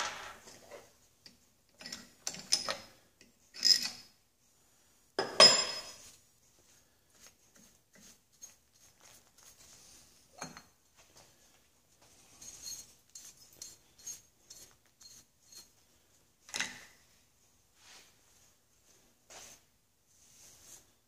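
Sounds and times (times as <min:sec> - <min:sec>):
metal clamps clinking and knocking: 0:01.3 - 0:04.1.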